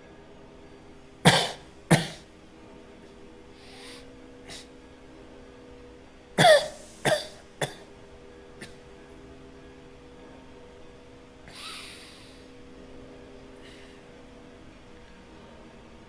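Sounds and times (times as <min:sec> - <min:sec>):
low hum: 0:00.0 - 0:16.0
man coughing harshly: 0:01.3 - 0:02.2, 0:06.4 - 0:07.8.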